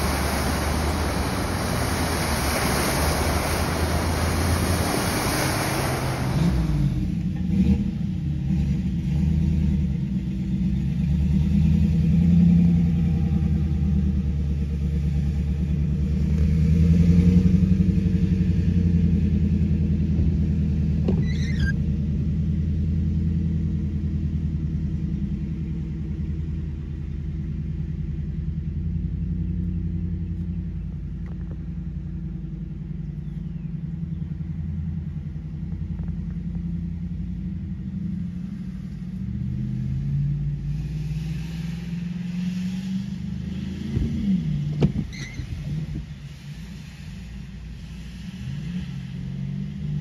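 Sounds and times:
windshield wiper sweeping: 0.0 - 7.0, 21.0 - 21.8, 43.9 - 46.0
tyres hissing on wet road: 0.0 - 21.8, 34.7 - 50.0
car engine rumble from inside: 0.0 - 50.0.

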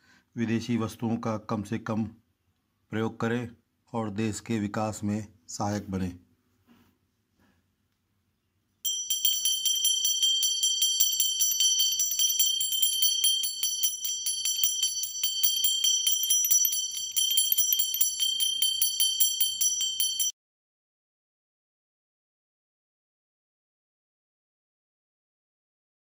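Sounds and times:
small bell rung rapidly: 8.9 - 20.3.

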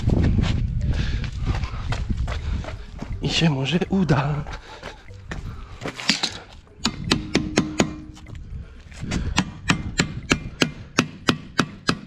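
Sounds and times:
hammer striking steel bar: 6.1 - 8.2, 9.4 - 12.0.

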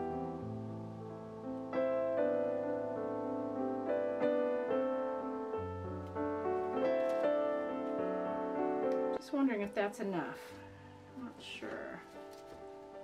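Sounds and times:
piano music: 0.0 - 13.0.

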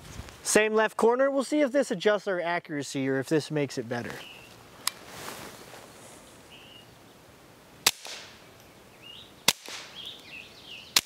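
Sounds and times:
suppressed pistol shots: 7.8 - 8.4, 9.5 - 10.0.

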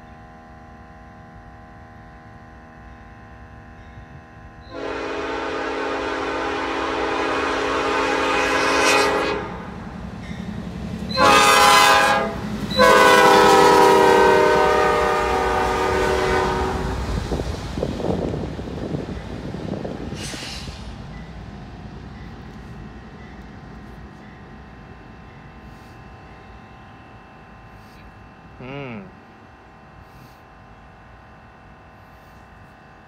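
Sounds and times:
diesel locomotive rumble: 0.0 - 33.0
locomotive air horn blasts: 4.7 - 9.8, 11.1 - 17.1.

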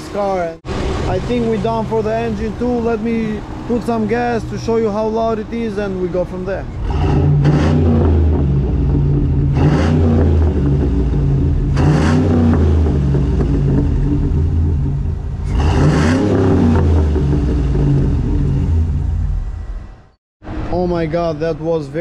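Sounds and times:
car engine revving from idle: 6.8 - 19.6.

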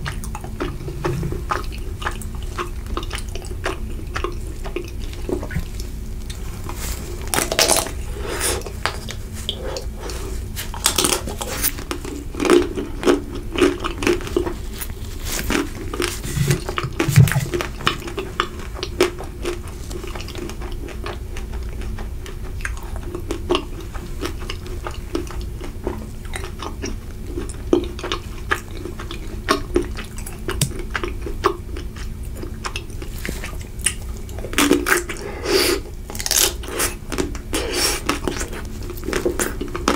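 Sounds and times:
chewing close to microphone: 0.0 - 39.9
ice cream chocolate shell crunching: 7.1 - 10.0.

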